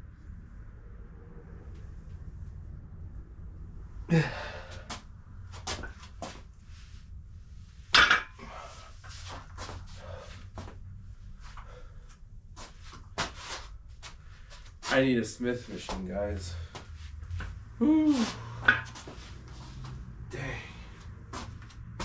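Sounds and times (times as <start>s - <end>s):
steady low rumble: 0.0s - 22.0s
person breathing hard: 4.1s - 5.0s, 8.4s - 10.8s, 11.5s - 12.2s, 17.8s - 21.5s.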